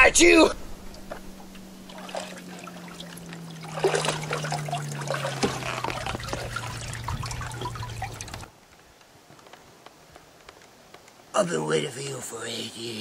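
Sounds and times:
low hum: 0.0 - 8.5
water splashing and dripping: 0.9 - 8.5.

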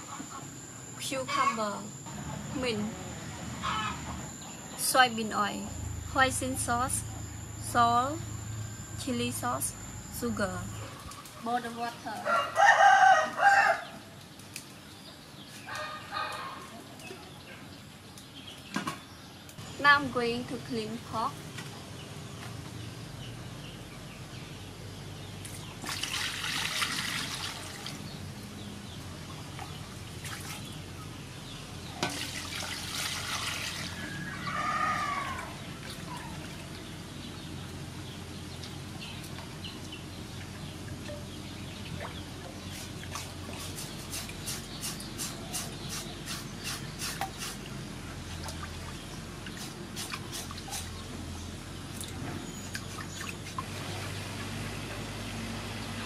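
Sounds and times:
water sloshing in metal bowl: 32.0 - 34.2.

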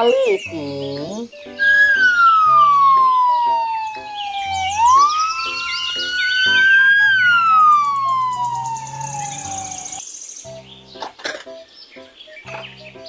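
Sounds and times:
light background music: 0.0 - 13.0
police siren wailing: 1.6 - 10.0.

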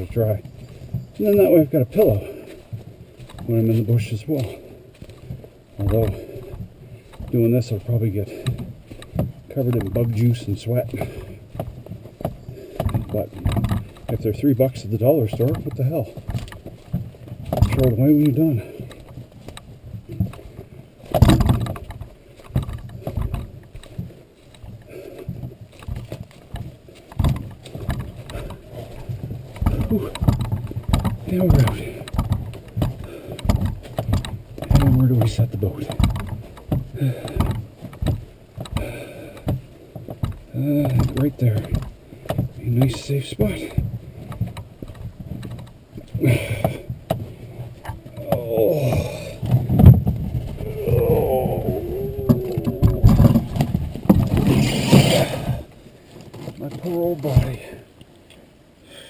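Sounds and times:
canoe hull thuds and knocks: 0.0 - 57.8
footsteps on a trail: 0.0 - 59.0
heavy thump: 47.8 - 50.7.

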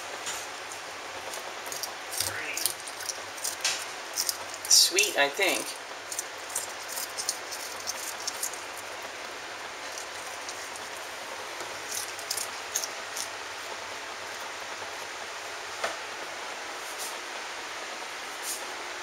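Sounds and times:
steady hiss: 0.0 - 19.0
cat chewing crunchy pea pod: 1.2 - 14.5.

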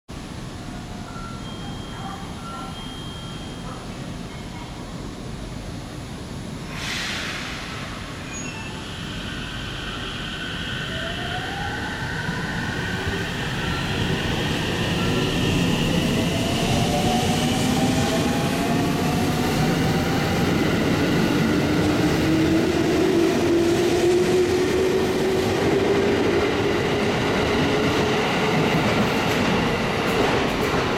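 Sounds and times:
train wheels rumbling on rails: 12.6 - 30.9.

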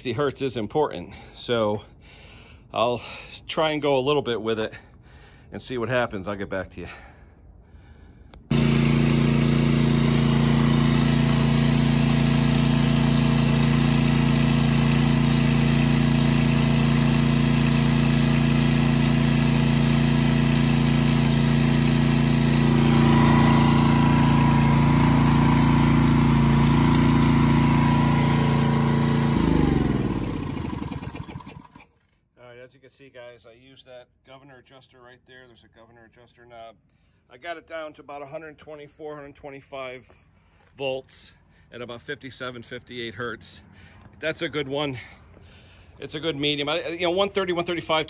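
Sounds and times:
generator engine running: 8.4 - 32.0.

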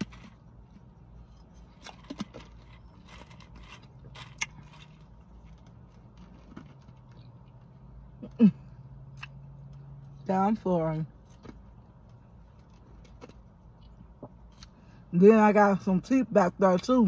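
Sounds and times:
ice being chewed: 0.0 - 7.7
steady low hum: 0.0 - 17.0.

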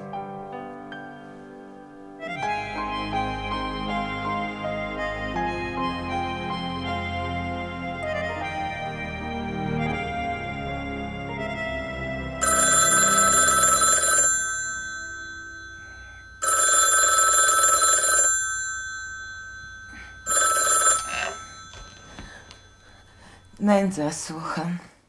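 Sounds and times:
soft music: 0.0 - 16.6
telephone bell ringing: 12.4 - 23.6.

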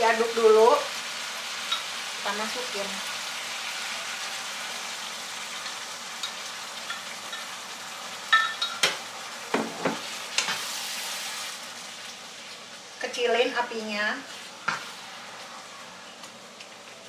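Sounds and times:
meat sizzling in a pan: 0.0 - 17.0
glass bowl clink: 8.3 - 8.9.

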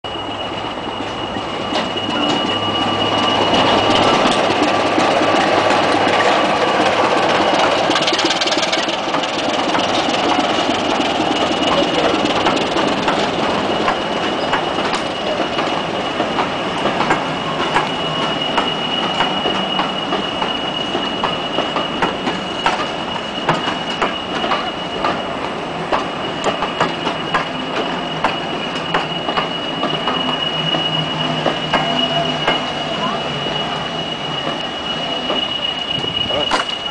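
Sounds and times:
diesel locomotive engine: 0.0 - 36.9
high-pitched wheel squeal: 0.1 - 36.9
train wheels clicking over rail joints: 3.1 - 32.9, 34.4 - 36.9.

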